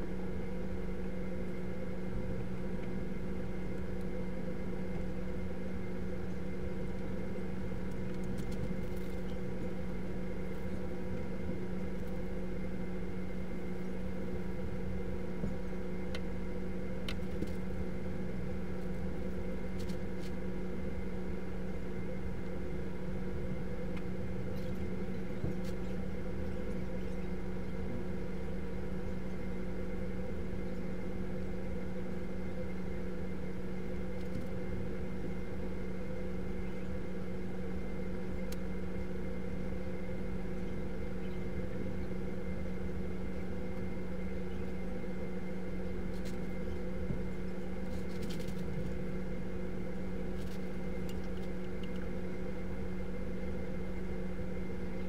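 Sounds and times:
low machine hum with hiss: 0.0s - 55.0s.

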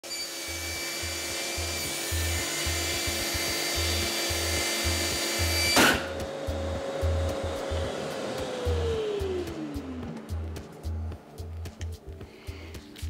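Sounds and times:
table saw whining: 0.0s - 10.9s
motor hum running down: 0.4s - 11.9s
music beat: 1.6s - 13.0s
saw brake sharp crack: 5.7s - 6.2s.

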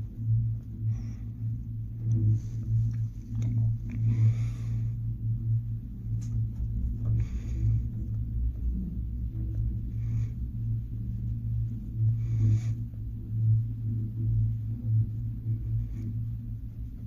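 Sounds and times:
cable car cabin hum and rumble: 0.0s - 17.0s.

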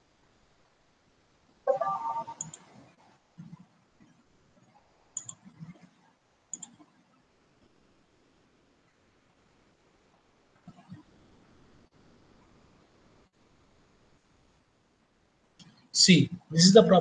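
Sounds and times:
brief pitched tones: 1.7s - 2.5s
computer mouse double-clicks: 2.4s - 2.7s, 5.2s - 5.8s, 6.5s - 6.9s.

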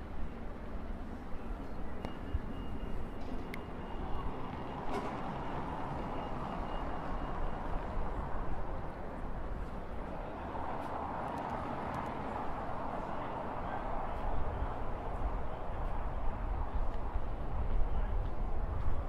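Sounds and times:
city traffic hum: 0.0s - 19.0s
vehicles passing: 0.0s - 19.0s.

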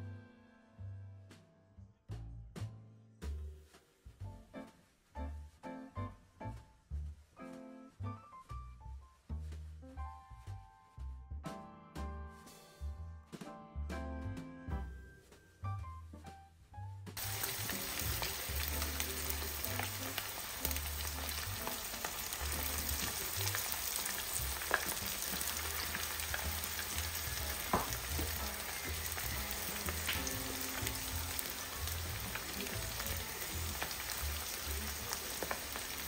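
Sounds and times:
chicken deep-frying in oil: 17.2s - 36.0s.

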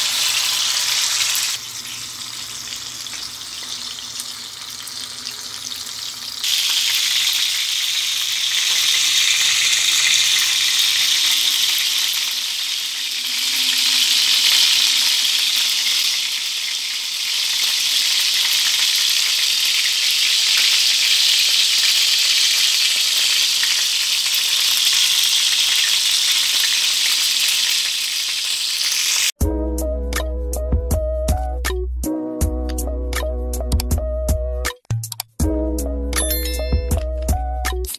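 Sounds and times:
food sizzling in hot oil: 0.0s - 29.4s
music: 29.4s - 37.9s.

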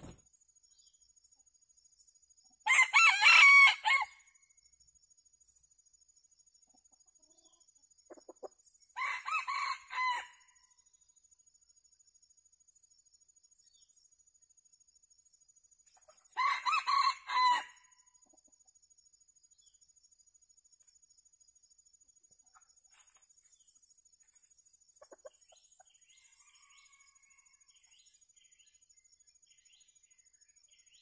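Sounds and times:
rooster crowing: 2.7s - 4.2s, 9.0s - 10.4s, 16.4s - 17.8s, 26.3s - 27.6s.

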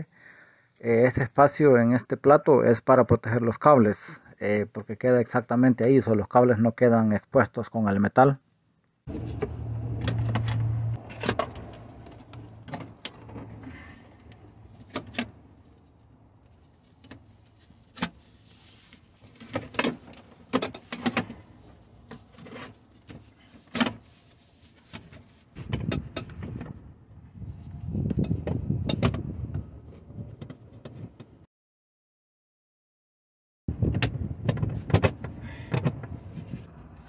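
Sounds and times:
low hum: 9.1s - 14.8s.

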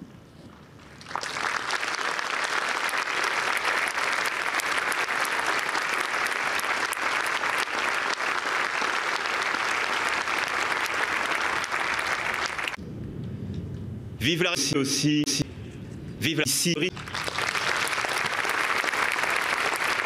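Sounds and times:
crowd applauding: 0.8s - 12.8s, 16.9s - 20.0s.

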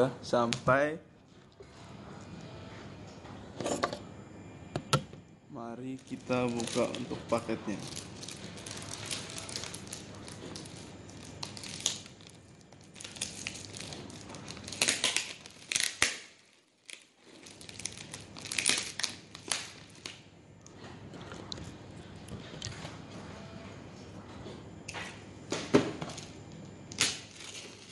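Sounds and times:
plastic and paper crinkling and tearing: 5.9s - 20.2s, 26.9s - 27.9s.

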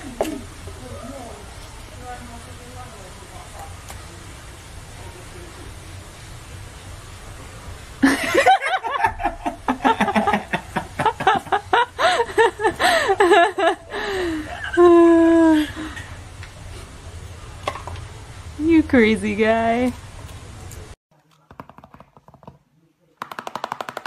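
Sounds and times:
people laughing hard: 8.0s - 16.2s.

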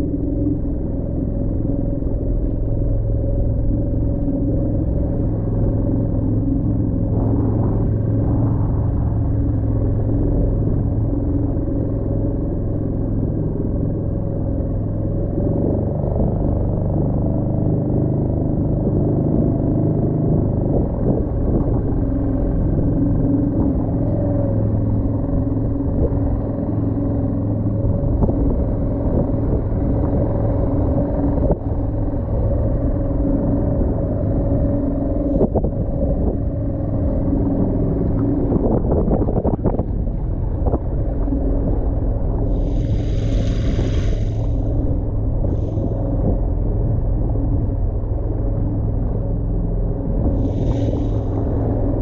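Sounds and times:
outboard motor running: 0.0s - 52.0s
brief rushing hiss: 42.6s - 44.7s.

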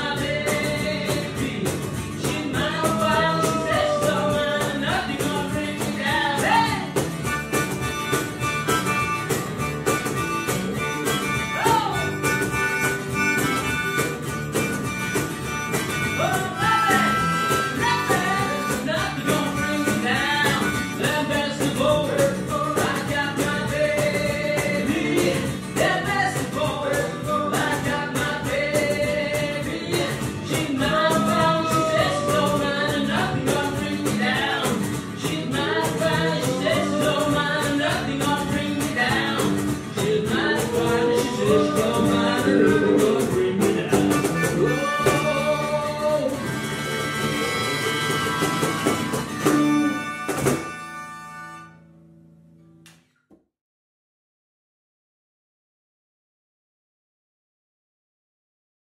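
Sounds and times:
man singing: 0.0s - 7.0s, 16.1s - 47.6s
bass: 0.0s - 53.3s
guitar: 0.0s - 53.3s.

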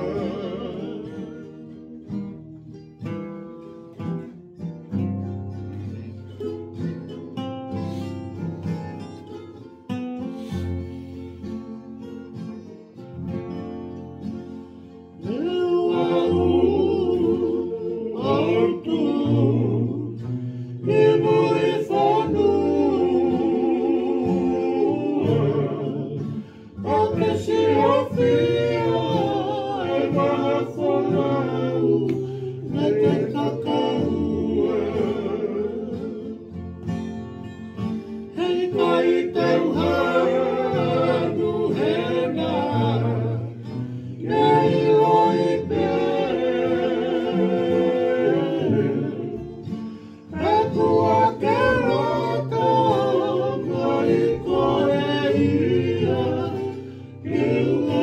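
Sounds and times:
men singing in harmony: 0.0s - 1.6s, 15.2s - 36.6s, 38.3s - 58.0s
strummed guitar and ukuleles: 0.0s - 58.0s.

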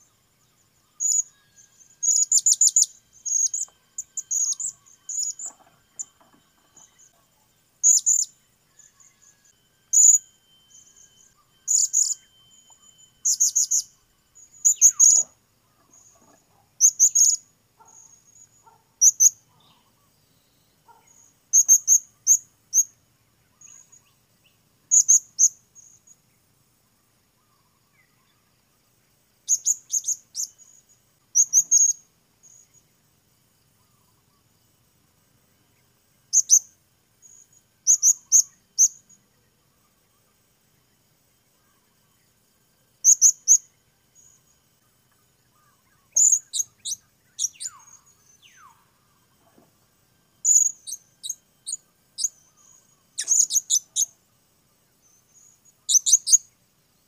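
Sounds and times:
parrot chirping: 2.0s - 6.1s, 7.8s - 8.3s, 9.9s - 10.3s, 11.6s - 12.4s, 13.2s - 13.9s, 53.2s - 54.1s, 55.9s - 56.4s.

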